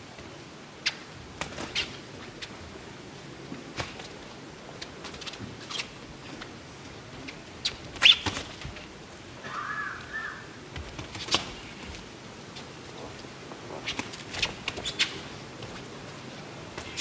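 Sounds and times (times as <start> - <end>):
shoes squeaking on canvas: 13.6 - 16.0.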